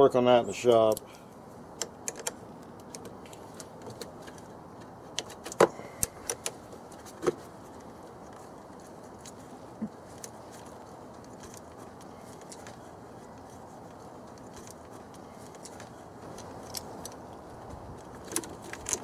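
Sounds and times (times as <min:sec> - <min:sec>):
low background noise: 0:00.0 - 0:19.0.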